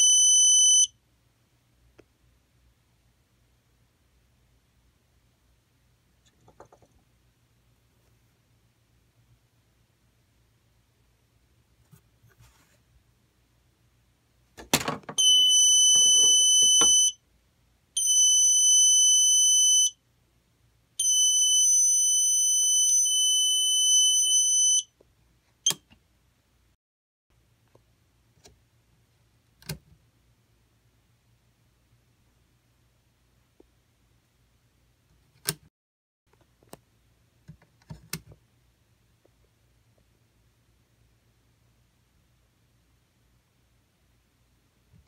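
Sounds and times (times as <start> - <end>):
high-pitched electronic alarm tone: 0.0 - 0.9, 15.2 - 17.2, 18.0 - 20.0, 21.0 - 24.9.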